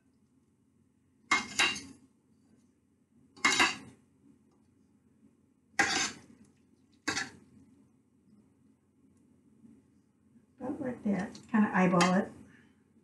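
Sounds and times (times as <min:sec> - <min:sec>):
forks clinking against metal pot: 0:03.4 - 0:03.8.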